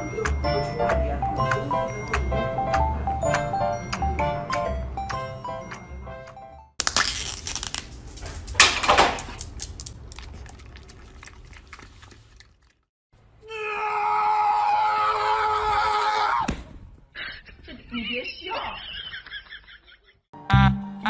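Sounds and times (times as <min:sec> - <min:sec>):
plastic cup crinkling: 0:06.8 - 0:12.8
dog licking and slurping: 0:09.5 - 0:12.9.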